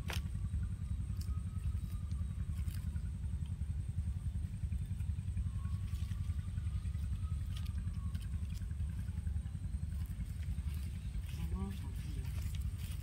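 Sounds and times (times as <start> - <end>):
faint drone: 0.0 - 13.0
low rumble: 0.0 - 13.0
reed stalks rustling: 9.9 - 13.0.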